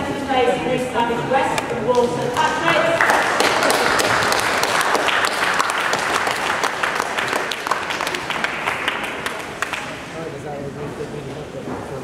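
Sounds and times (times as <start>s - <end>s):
audience applauding: 2.4s - 10.1s.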